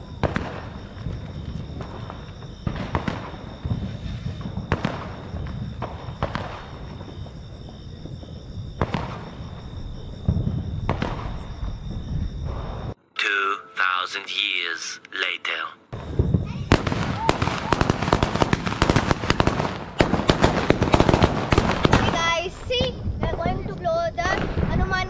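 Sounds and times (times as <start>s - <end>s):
firecrackers banging: 0.0s - 11.6s, 16.0s - 25.0s
faint high-pitched tone: 13.1s - 15.1s.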